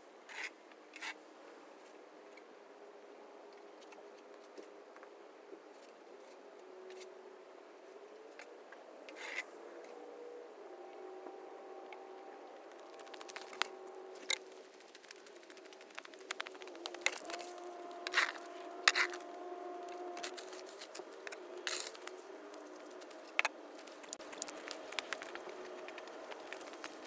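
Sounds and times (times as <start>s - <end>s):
faint hum: 0.0s - 27.0s
snow shovel scraping snow on asphalt: 18.0s - 19.2s, 20.1s - 22.2s.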